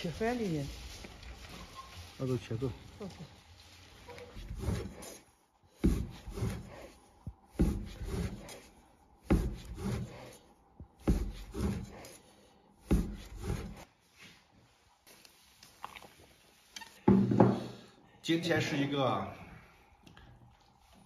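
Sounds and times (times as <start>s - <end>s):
knife cutting dough on wooden board: 4.4s - 10.4s, 11.0s - 12.2s, 12.8s - 13.9s.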